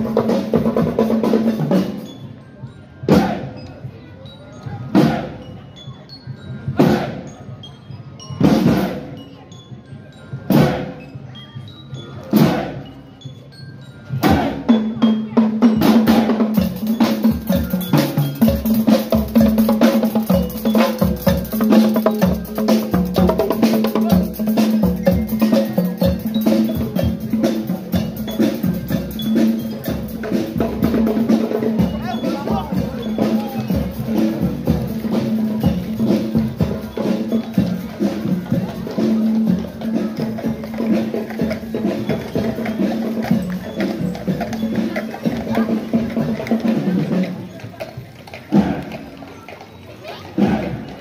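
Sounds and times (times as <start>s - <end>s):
fast drum and percussion rhythm: 0.0s - 4.0s, 8.2s - 51.0s
heavy bass drum beats: 15.9s - 44.6s.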